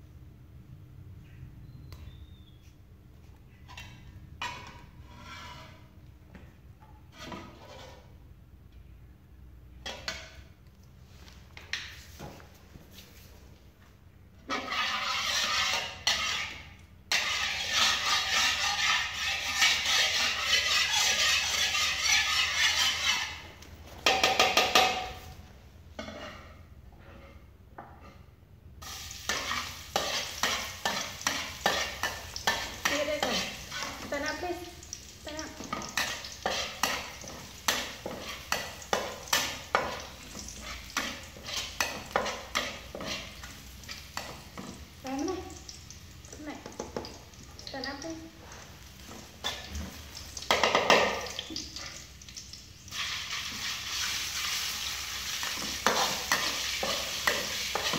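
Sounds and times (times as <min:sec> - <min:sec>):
metal spatula scraping wok: 0:03.7 - 0:06.0, 0:07.0 - 0:08.2, 0:14.4 - 0:25.2, 0:26.0 - 0:34.5, 0:35.4 - 0:44.8, 0:48.4 - 0:51.3, 0:52.9 - 0:57.9
food sizzling in hot oil: 0:14.5 - 0:23.5, 0:28.8 - 0:57.9.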